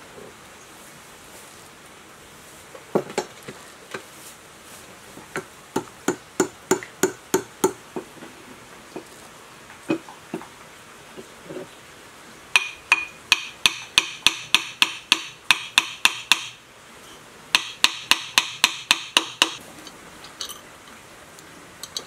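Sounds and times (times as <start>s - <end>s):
hammer tapping metal: 12.6s - 16.6s, 17.6s - 19.6s.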